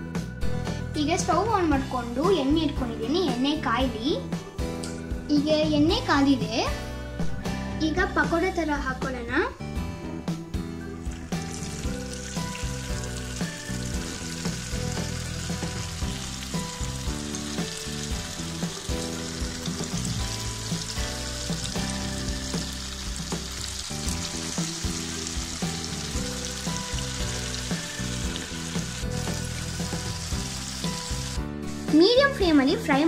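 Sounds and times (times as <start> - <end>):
background music: 0.0 - 33.0
fritters sizzling in hot oil: 11.0 - 31.9.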